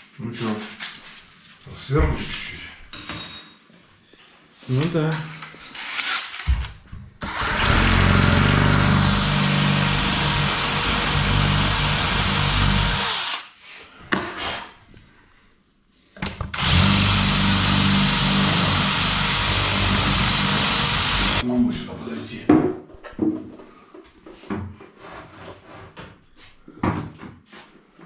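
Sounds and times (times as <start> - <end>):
power drill boring metal: 7.2 - 13.5, 16.6 - 21.4.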